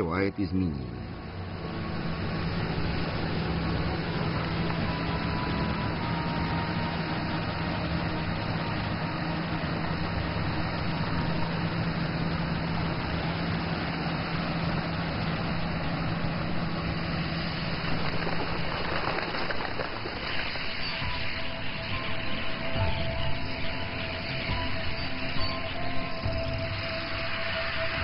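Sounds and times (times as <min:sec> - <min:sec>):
low engine hum: 0:00.0 - 0:28.0
rushing water from pipe: 0:01.3 - 0:22.9.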